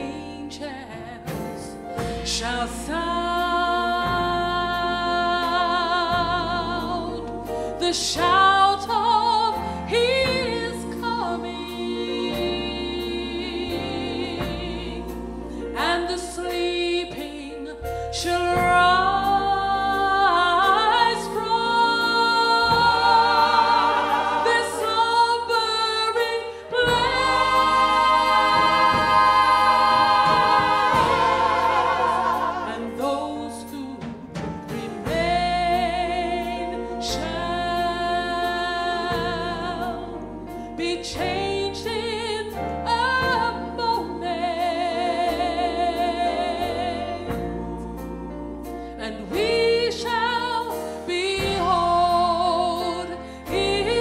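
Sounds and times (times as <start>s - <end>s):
backing singers: 21.5s - 33.6s.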